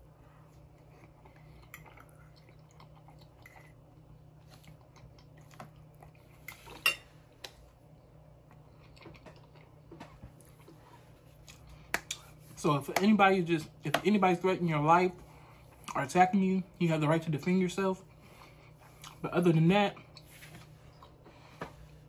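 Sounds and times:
faint chewing: 0:00.0 - 0:07.7, 0:08.4 - 0:12.6, 0:18.0 - 0:19.3, 0:19.9 - 0:21.9.

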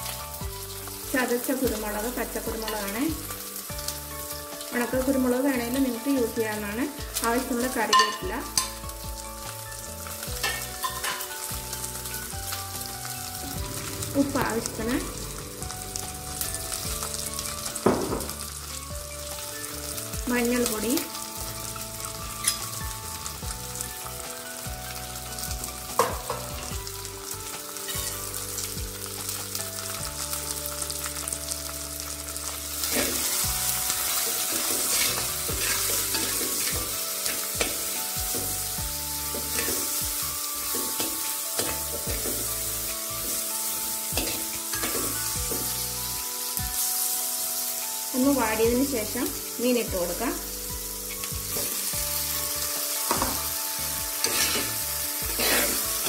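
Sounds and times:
vegetables sizzling in hot oil: 0:00.0 - 0:56.0
spoon stirring in a pot: 0:54.2 - 0:54.7.

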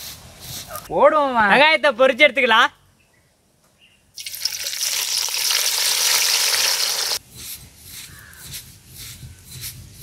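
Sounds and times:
onions sizzling in hot oil: 0:04.2 - 0:07.2.

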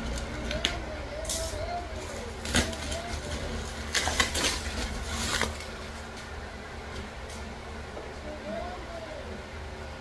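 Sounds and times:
steady low hum: 0:00.0 - 0:10.0
packaging clicks and rustles: 0:02.1 - 0:06.2.

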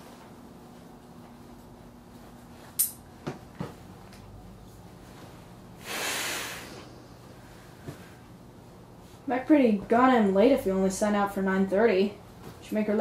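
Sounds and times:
person exhaling smoke: 0:05.8 - 0:08.2.

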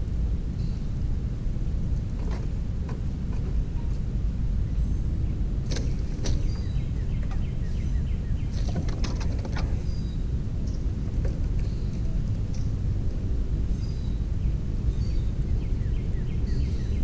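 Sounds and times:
steady low rumble: 0:00.0 - 0:17.0
sharp clicks and rustles: 0:08.5 - 0:09.9.

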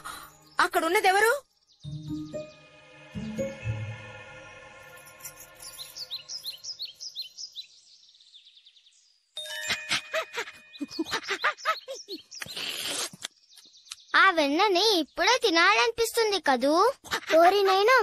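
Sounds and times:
falling chirps and tinkles: 0:00.0 - 0:12.4.

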